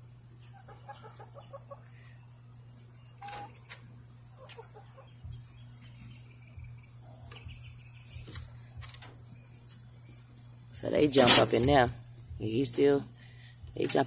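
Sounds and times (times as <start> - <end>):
steady low hum: 0.0 - 14.0
chickens clucking: 0.2 - 10.2.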